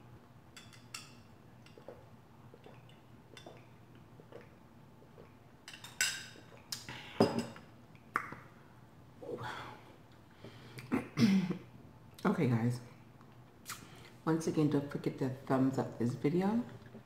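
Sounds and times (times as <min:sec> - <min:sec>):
glass clinking on a table: 0:07.2 - 0:07.6.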